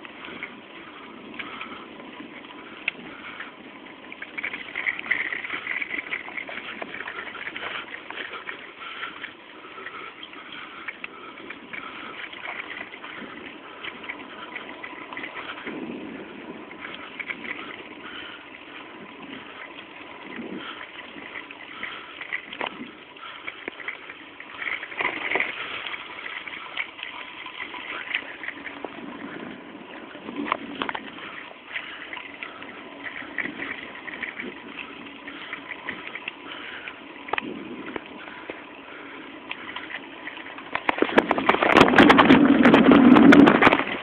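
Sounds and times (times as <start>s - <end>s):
bicycle tyres rolling: 0.0s - 44.0s
wind on microphone: 12.8s - 18.1s, 40.6s - 44.0s
bike knocks and rattles: 40.5s - 44.0s.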